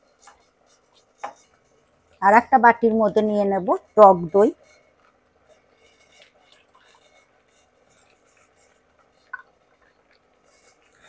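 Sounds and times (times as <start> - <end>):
spoon clinking and scraping bowl: 3.8 - 11.0.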